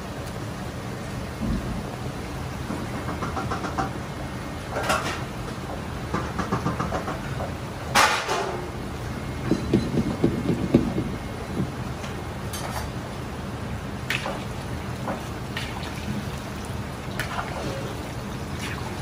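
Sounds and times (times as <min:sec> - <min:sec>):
low constant rumble: 0:07.7 - 0:19.0
chicken deep-frying in oil: 0:11.9 - 0:19.0.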